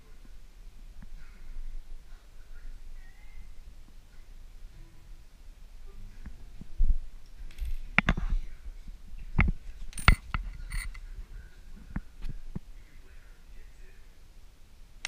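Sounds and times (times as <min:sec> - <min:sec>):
coins clinking on a countertop: 0:07.5 - 0:07.9, 0:09.9 - 0:11.0.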